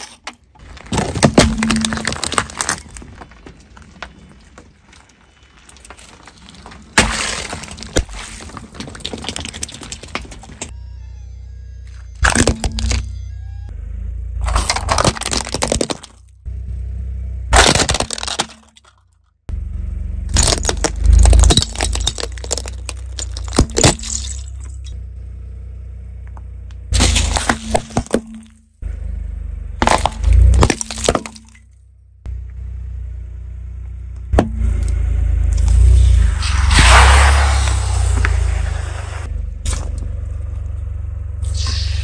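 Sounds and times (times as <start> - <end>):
low car rumble: 0.3 - 42.0
plastic toys cracking under tyre: 0.6 - 10.7, 14.7 - 16.3, 17.5 - 19.0, 20.3 - 24.2.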